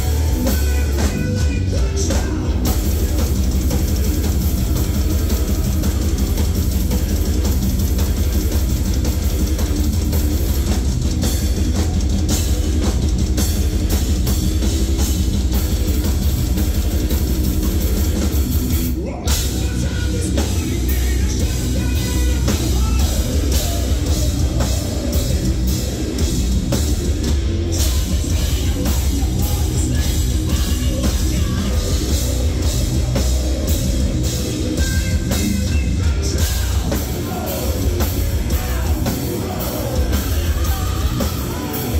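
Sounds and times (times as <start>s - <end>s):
person singing: 0.0s - 7.0s, 34.3s - 41.9s
heavy metal band playing live: 0.0s - 41.9s
pounding drum kit: 0.0s - 41.9s.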